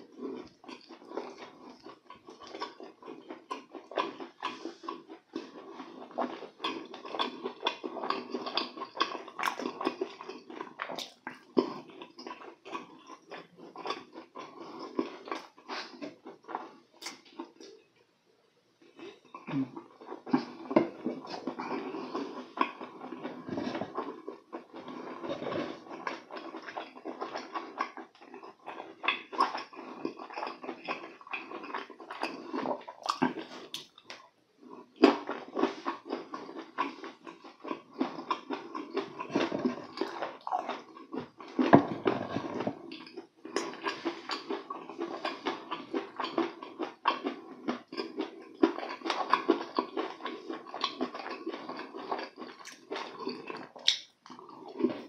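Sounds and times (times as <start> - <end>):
close chewing and lip-smacking: 0.0 - 17.9, 18.8 - 55.0
wet sticky mouth clicks: 53.8 - 54.2.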